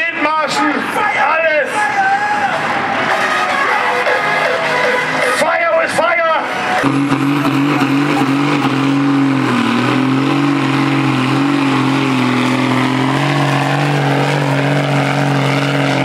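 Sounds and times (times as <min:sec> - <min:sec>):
tractor engine at high revs: 0:06.5 - 0:16.0.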